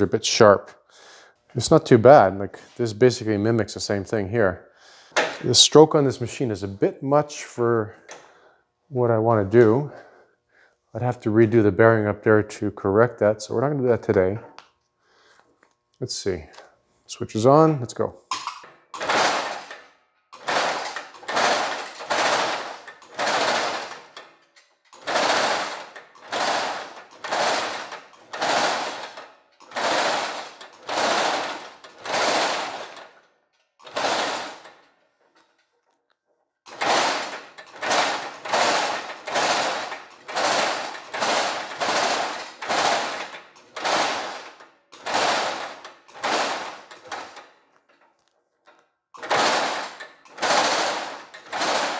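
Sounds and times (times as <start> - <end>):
power hammer pounding metal mesh: 19.0 - 19.8, 25.0 - 33.1, 36.7 - 47.4, 49.2 - 51.9.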